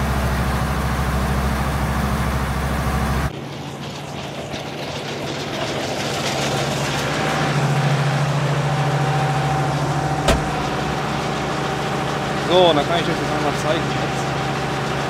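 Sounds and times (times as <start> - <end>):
tractor engine running: 7.1 - 15.0
sharp knock: 10.3 - 10.7.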